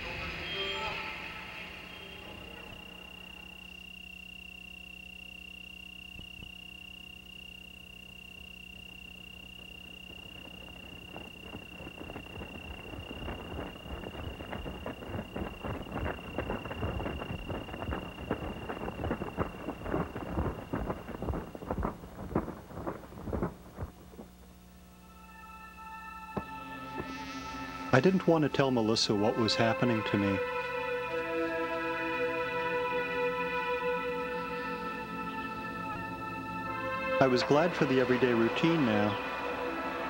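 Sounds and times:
crickets trilling: 0.0 - 40.0
low hum: 0.0 - 40.0
irregular crackling: 8.9 - 24.9.

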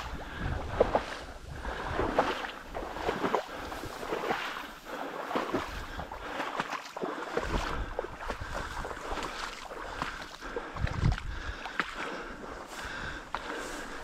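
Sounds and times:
wind rumbling on microphone: 0.0 - 6.4, 7.4 - 11.8
water swishing: 0.0 - 14.0.

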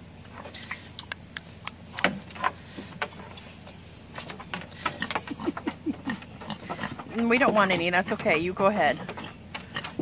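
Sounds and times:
pig chewing crunchily: 0.2 - 10.0
hoof taps on wooden boards: 2.0 - 10.0.

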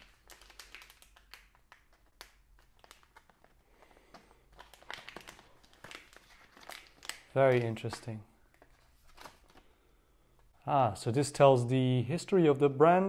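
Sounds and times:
plastic sleeve crinkling: 0.0 - 9.8.

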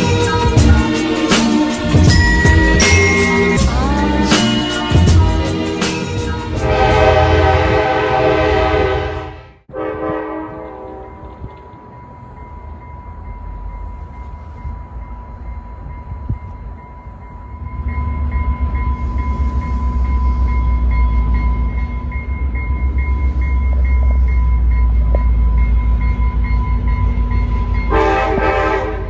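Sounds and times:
diesel locomotive engine rumble: 0.0 - 29.0
multi-tone train horn: 6.5 - 11.6, 27.9 - 29.0.

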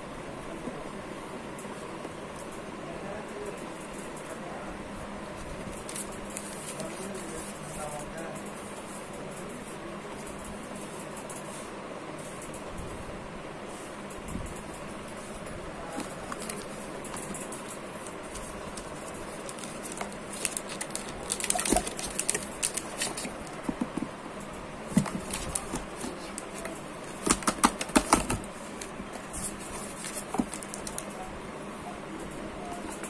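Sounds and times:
cardboard box rustling: 15.9 - 24.1, 24.9 - 31.0.

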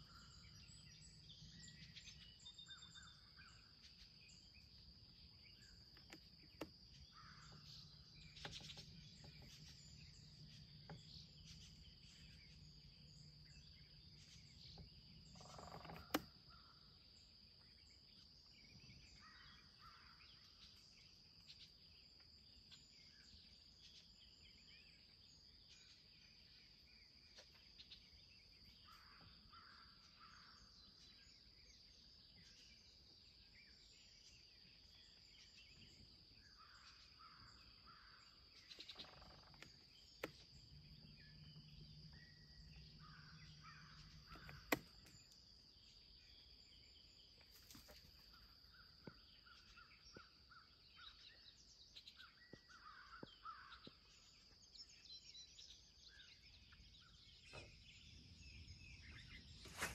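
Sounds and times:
bird chirps: 0.0 - 59.9
insect drone: 6.4 - 27.1, 27.7 - 59.9
sharp click: 44.3 - 44.9.

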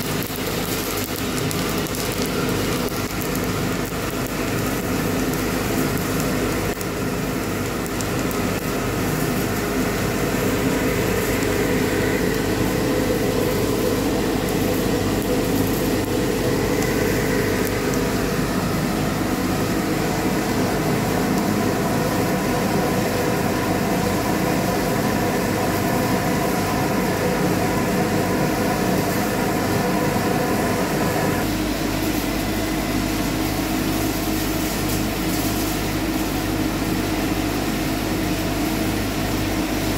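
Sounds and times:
beans churning: 0.0 - 30.8
coffee roaster cooling tray whirring: 0.0 - 39.9.

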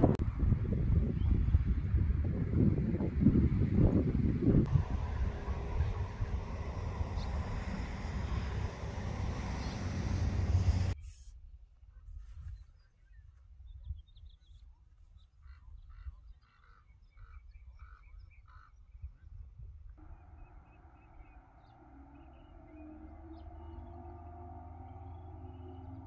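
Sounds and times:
low rumble: 0.0 - 11.0, 20.0 - 26.0
soft sustained music tones: 4.7 - 11.0, 20.0 - 26.0.

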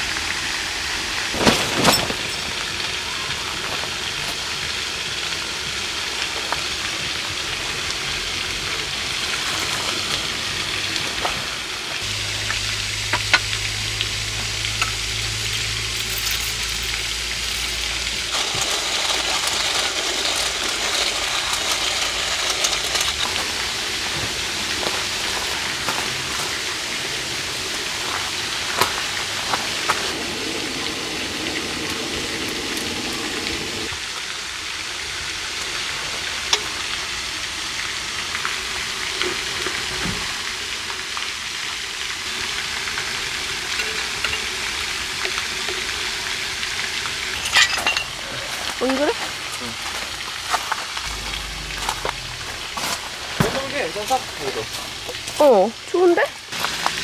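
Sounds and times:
food sizzling in a pan: 2.2 - 57.0
utensils clicking: 17.6 - 23.5
low hum: 51.0 - 53.4.

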